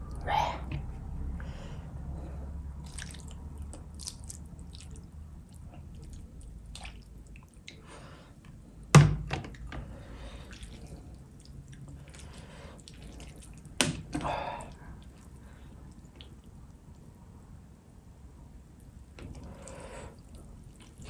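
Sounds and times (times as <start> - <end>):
gravy pouring: 2.8 - 7.9, 10.0 - 17.1, 19.2 - 21.0
wet drips and splats: 2.8 - 7.9, 9.5 - 17.1, 19.2 - 21.0.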